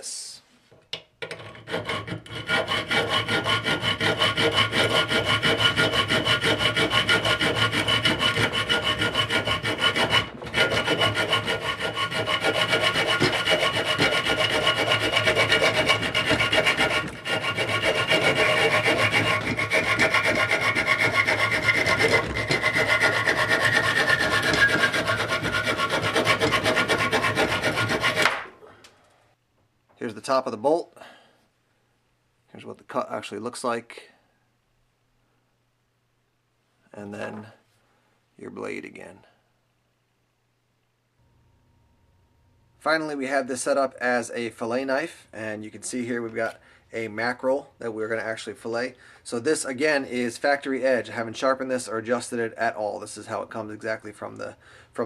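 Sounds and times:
hand saw rasping through metal: 0:01.3 - 0:28.5.

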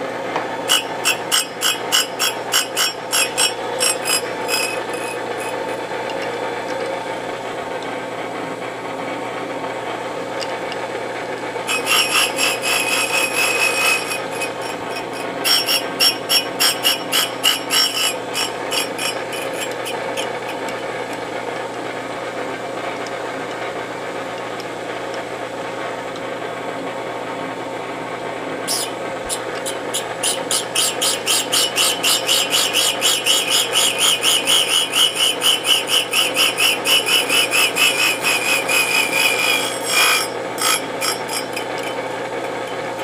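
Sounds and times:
grinder wheel grinding steel: 0:00.3 - 0:07.8, 0:10.3 - 0:21.7, 0:28.6 - 0:43.0
scratchy pulsing grinding: 0:00.7 - 0:07.0, 0:11.6 - 0:20.8.

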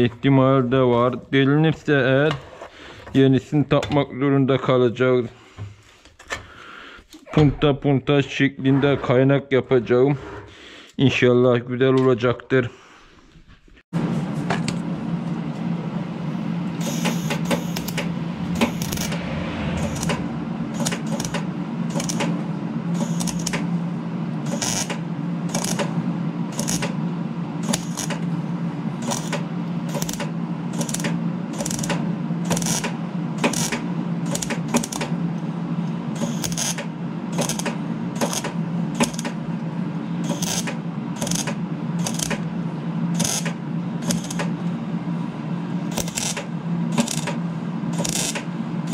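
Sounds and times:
steady low hum: 0:14.0 - 0:48.9
welder arc crackling: 0:16.8 - 0:19.2, 0:19.8 - 0:22.3, 0:23.0 - 0:23.6, 0:24.5 - 0:25.9, 0:26.6 - 0:27.0, 0:27.6 - 0:28.2, 0:29.0 - 0:35.1, 0:36.2 - 0:36.8, 0:37.4 - 0:39.3, 0:40.3 - 0:42.4, 0:43.2 - 0:44.5, 0:45.9 - 0:47.4, 0:48.0 - 0:48.4.

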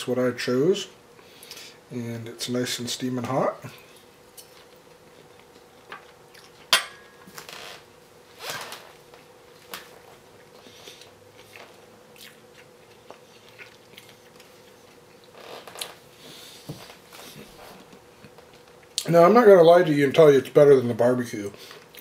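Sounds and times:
soft chewing: 0:03.6 - 0:06.7, 0:09.1 - 0:19.1, 0:21.6 - 0:22.0.

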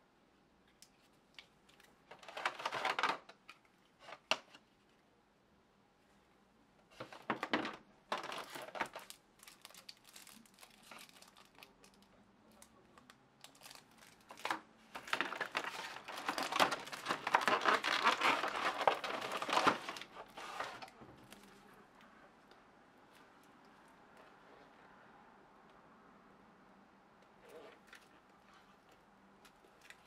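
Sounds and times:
plastic film wrap crinkling: 0:01.7 - 0:03.4, 0:07.0 - 0:12.7, 0:13.4 - 0:21.6.

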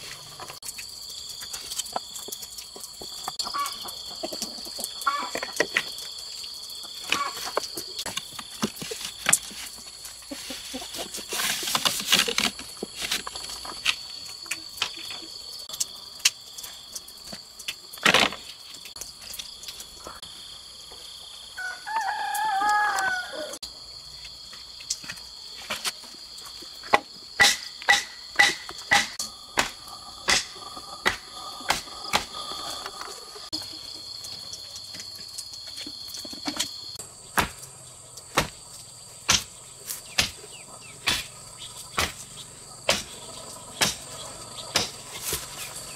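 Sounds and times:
rooster crowing: 0:21.5 - 0:23.6
sharp knocks: 0:26.9 - 0:32.3, 0:39.3 - 0:39.5, 0:40.2 - 0:40.4, 0:41.0 - 0:41.3, 0:42.0 - 0:42.2, 0:43.8 - 0:44.0
high insect shrilling: 0:27.9 - 0:34.8.

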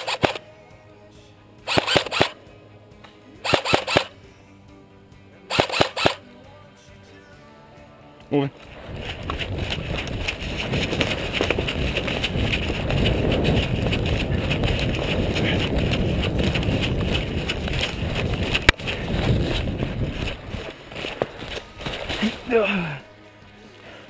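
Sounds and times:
sharp click: 0:00.0 - 0:00.4, 0:01.7 - 0:02.4, 0:03.0 - 0:04.2, 0:05.5 - 0:06.2
running footsteps on dry leaves: 0:08.6 - 0:24.0
wind buffeting microphone: 0:08.7 - 0:22.5.

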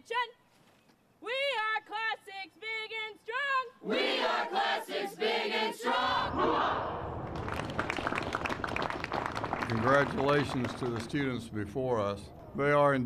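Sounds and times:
crowd shouting in unison: 0:03.8 - 0:07.3
people clapping: 0:07.2 - 0:11.4.

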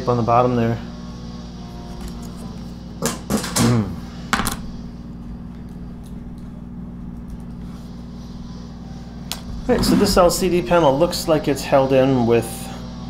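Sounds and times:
hum-like tone: 0:00.0 - 0:13.0.

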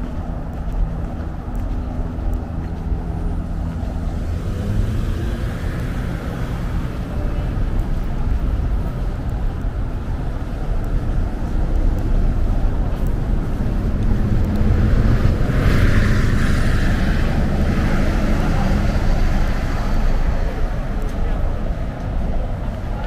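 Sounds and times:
road traffic rumble: 0:00.0 - 0:23.0
vehicle passing with tyre hiss: 0:13.3 - 0:20.8.

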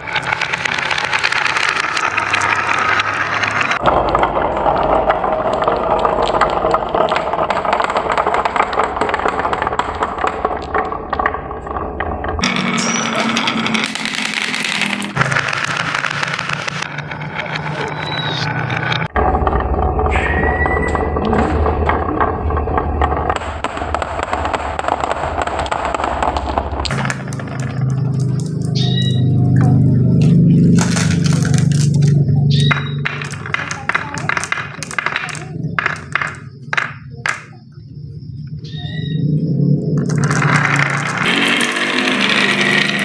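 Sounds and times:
marbles clicking together: 0:00.0 - 0:19.2, 0:21.6 - 0:37.6, 0:39.8 - 0:43.0
marbles rolling on wood: 0:00.0 - 0:43.0.

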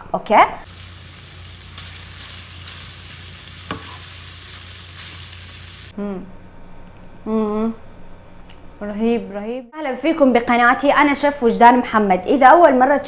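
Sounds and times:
meat sizzling in a frying pan: 0:00.6 - 0:05.9
spatula stirring in a pan: 0:00.7 - 0:05.9.

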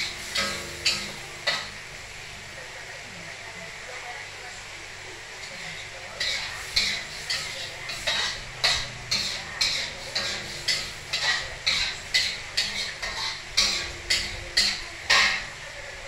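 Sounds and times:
metal spatula scraping a wok: 0:00.0 - 0:01.9, 0:05.4 - 0:15.5.

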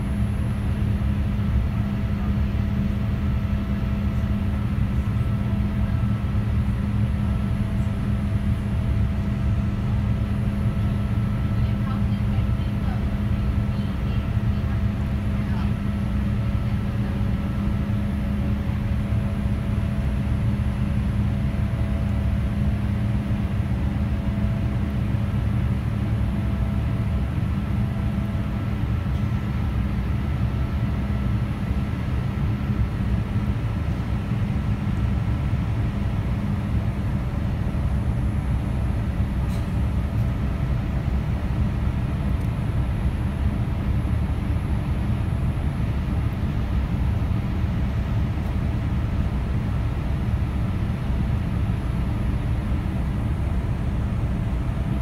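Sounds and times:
airplane cabin rumble: 0:00.0 - 0:55.0.

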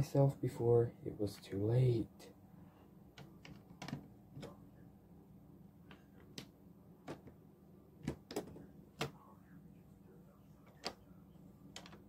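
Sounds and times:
plastic bricks clicking: 0:11.8 - 0:12.0.

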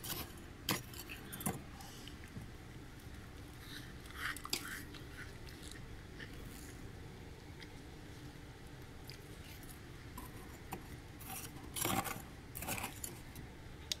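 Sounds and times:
spoon scraping frost: 0:03.6 - 0:06.8, 0:09.4 - 0:13.3.

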